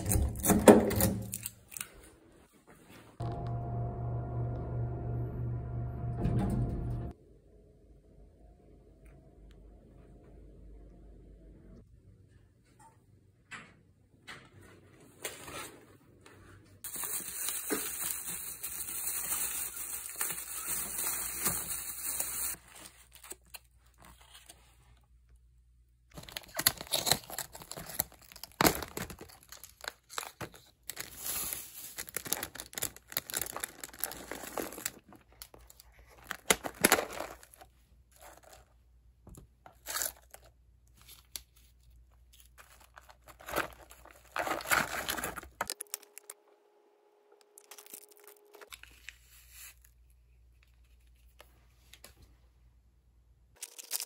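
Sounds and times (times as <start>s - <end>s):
plastic or paper crinkling and tearing: 16.8s - 24.8s, 26.1s - 38.8s, 39.8s - 46.4s, 47.6s - 50.0s.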